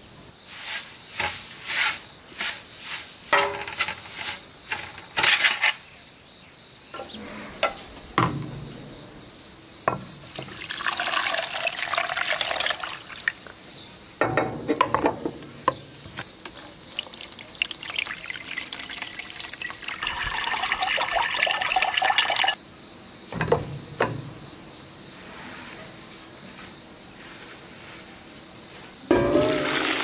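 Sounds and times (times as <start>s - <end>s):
water pouring and splashing: 10.3s - 13.5s, 16.5s - 22.6s, 29.3s - 30.0s
pot knocking: 29.1s - 30.0s.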